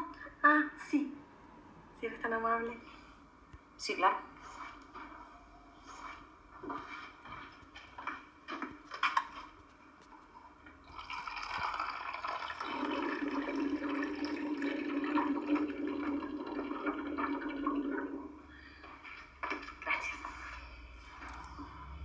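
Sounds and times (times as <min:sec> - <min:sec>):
water cooler dispensing water: 0:10.8 - 0:19.8.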